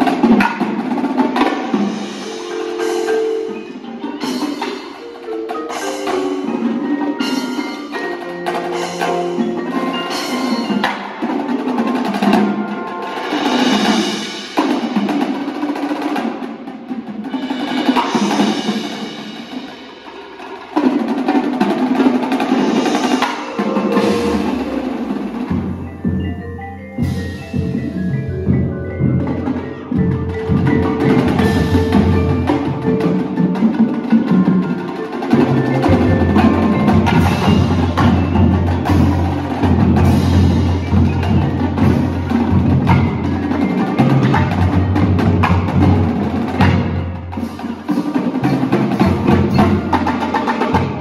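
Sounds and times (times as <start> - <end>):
marching drum line: 0.0 - 51.0
marimbas playing quick runs: 0.0 - 51.0.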